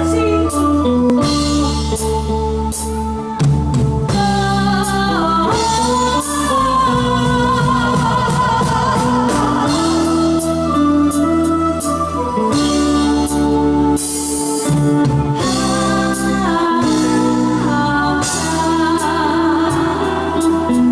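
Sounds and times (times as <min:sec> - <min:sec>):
live band playing: 0:00.0 - 0:20.9
person singing into a microphone: 0:00.0 - 0:20.9.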